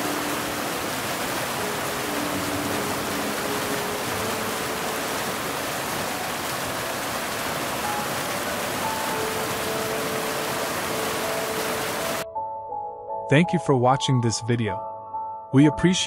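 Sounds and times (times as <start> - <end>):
waterfall rushing into pool: 0.0 - 12.2
faint sustained music: 0.0 - 16.0.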